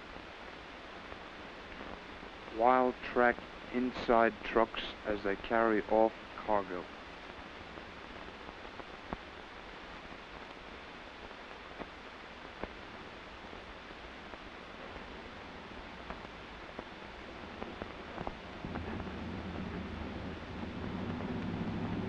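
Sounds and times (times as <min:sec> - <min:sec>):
steady hiss: 0:00.0 - 0:22.0
truck engine running low: 0:18.6 - 0:22.0.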